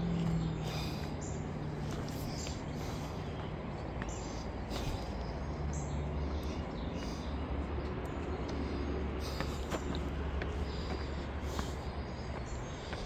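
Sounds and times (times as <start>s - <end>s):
bird chirps: 0.0s - 9.9s.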